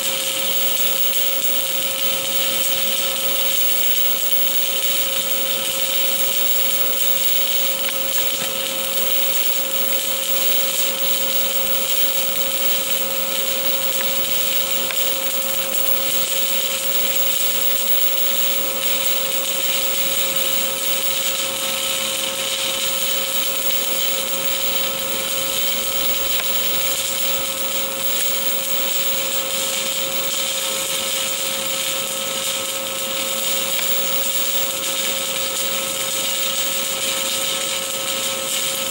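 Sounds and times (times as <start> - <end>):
welding arc hissing: 1.5 - 20.7, 22.8 - 29.7.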